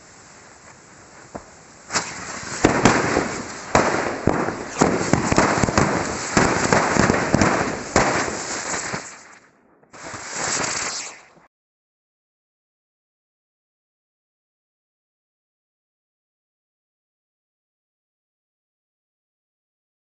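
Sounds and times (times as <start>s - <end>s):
firecrackers crackling and banging: 0.0s - 11.4s.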